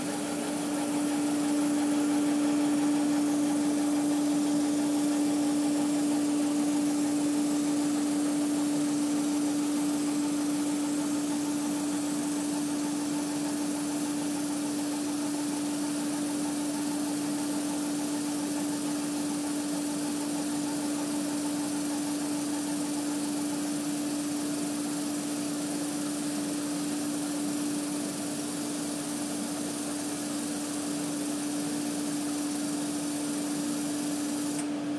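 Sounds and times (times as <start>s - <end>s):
laser engraver humming: 0.0s - 34.9s.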